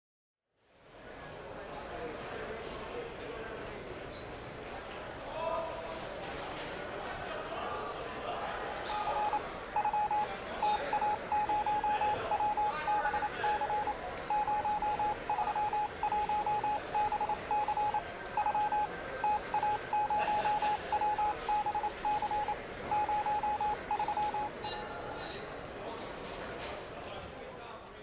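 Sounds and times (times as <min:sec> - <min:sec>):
morse code beeps: 0:09.0 - 0:24.6.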